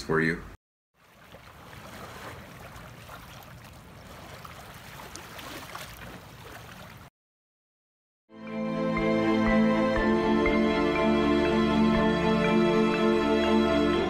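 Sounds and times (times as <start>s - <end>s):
waves lapping against rocks: 1.0s - 7.1s
soft music: 8.3s - 14.0s.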